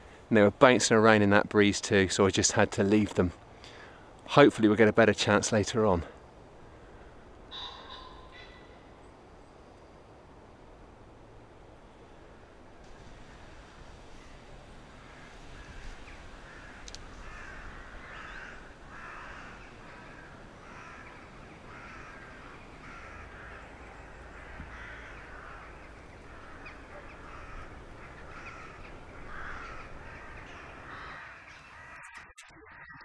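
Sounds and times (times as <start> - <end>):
crows cawing: 6.6 - 8.9, 14.8 - 32.3.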